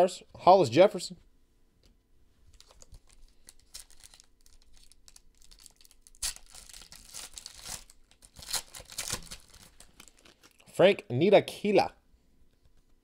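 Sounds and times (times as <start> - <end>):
foil wrapper tearing and crinkling: 2.5 - 10.6.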